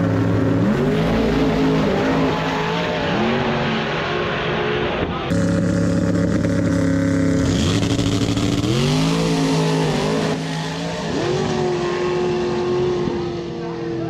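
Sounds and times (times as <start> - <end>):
race car engines revving: 0.0 - 14.0.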